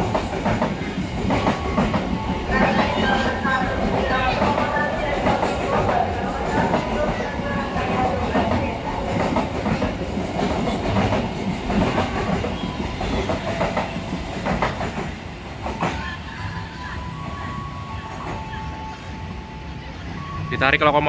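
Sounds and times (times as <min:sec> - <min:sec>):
train wheels clacking over rail joints: 0:00.0 - 0:16.0.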